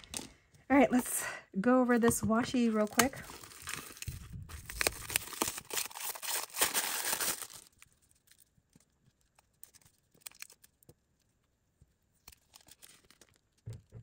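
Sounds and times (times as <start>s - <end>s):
packaging crinkling and tearing: 2.6s - 10.9s, 12.2s - 13.7s.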